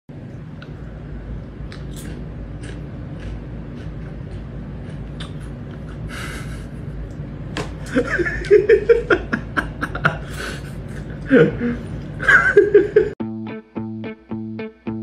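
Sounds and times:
person laughing: 5.7 - 7.1, 7.8 - 13.2.

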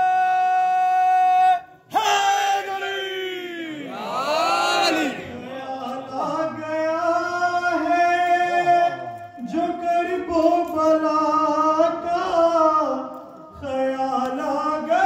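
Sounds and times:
man singing into a microphone: 4.9 - 15.0.

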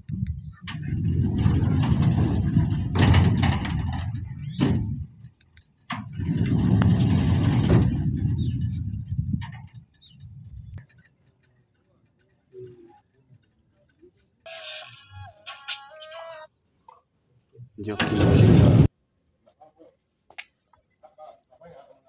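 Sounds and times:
insect trill: 0.0 - 22.0
sliding gate rumbling on track: 0.6 - 5.1, 5.9 - 9.8, 17.9 - 18.9.

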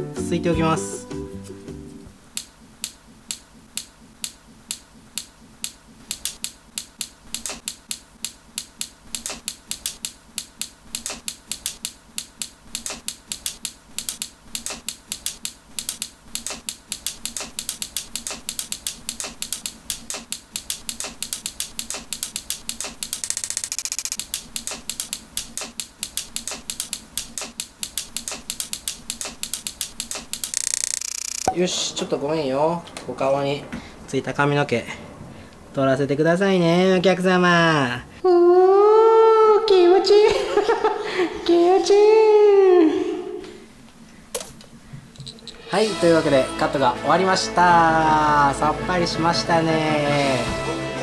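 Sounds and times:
scissors snipping hair: 2.3 - 31.5.

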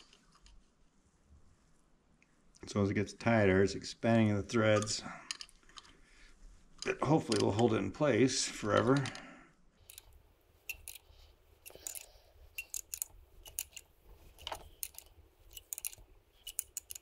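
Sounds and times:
faint metallic clicks of hand tool: 9.9 - 17.0.

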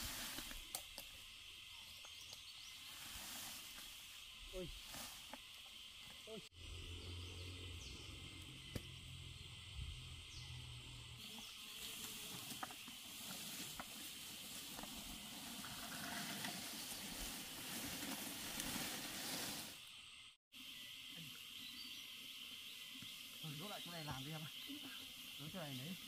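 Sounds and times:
footsteps through undergrowth: 0.0 - 1.1, 2.0 - 6.3, 11.2 - 19.8
forest insects droning: 0.0 - 26.0
low hum: 6.6 - 11.2.

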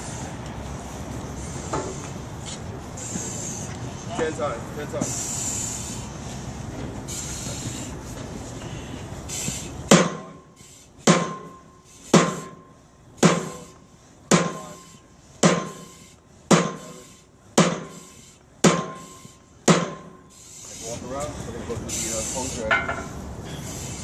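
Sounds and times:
sledgehammer clanging on steel: 11.1 - 12.6, 13.2 - 13.7, 14.3 - 18.1, 18.7 - 20.2.

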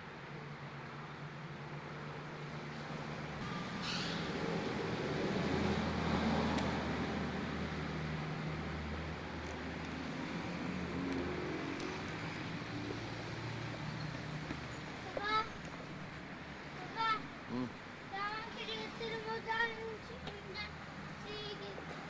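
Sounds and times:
distant road traffic rumble: 0.0 - 22.0.

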